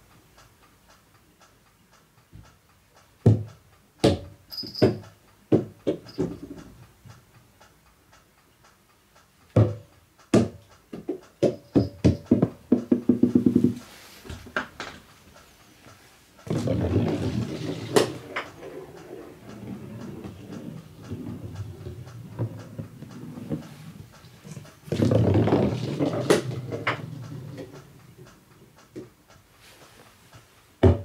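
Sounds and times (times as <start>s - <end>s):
rubber balls bouncing on wooden floor: 3.3s - 6.5s, 9.6s - 15.0s, 16.4s - 27.8s.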